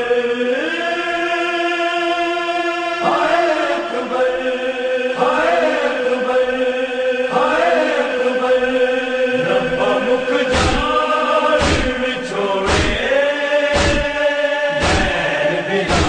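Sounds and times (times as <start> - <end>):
person chanting religious recitation: 0.0 - 16.0
steady drone tone: 9.1 - 12.0
sharp thump: 10.5 - 11.0, 11.6 - 12.0, 12.7 - 13.1, 13.7 - 14.2, 14.8 - 15.2.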